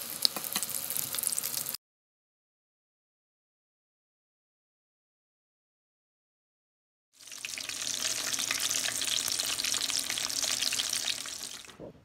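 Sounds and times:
chicken deep-frying in oil: 0.0 - 1.8, 7.2 - 11.8.

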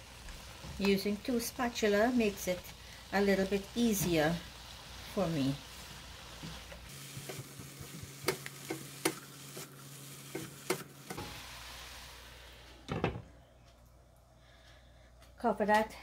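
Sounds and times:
noodles sizzling in a pan: 0.0 - 13.0
spatulas tapping a pan: 6.4 - 9.7.

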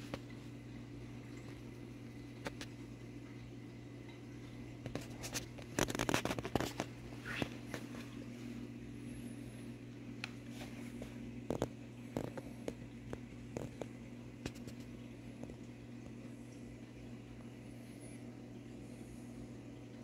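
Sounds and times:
aquarium equipment humming: 0.0 - 20.0
sharp clicks and crackles: 4.9 - 7.5.

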